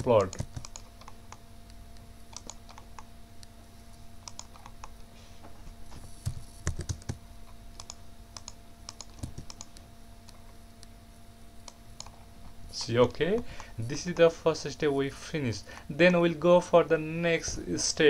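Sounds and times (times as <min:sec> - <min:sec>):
computer mouse clicks: 0:00.0 - 0:03.5, 0:04.2 - 0:05.0, 0:07.8 - 0:10.9, 0:11.6 - 0:12.2
faint steady hum: 0:00.0 - 0:18.0.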